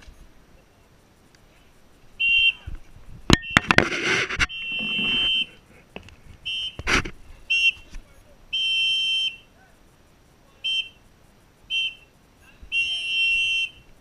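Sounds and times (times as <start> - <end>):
whistle blasts: 2.2 - 2.7, 3.3 - 5.6, 6.4 - 7.9, 8.5 - 9.6, 10.5 - 14.0
sharp cracks and noisy bursts: 2.2 - 10.2.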